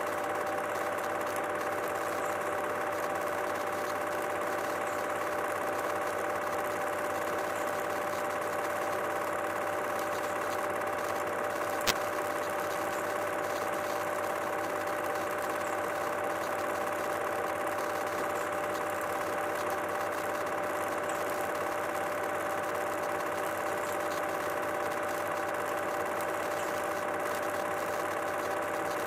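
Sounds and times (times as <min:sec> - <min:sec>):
film projector whirring: 0:00.0 - 0:29.0.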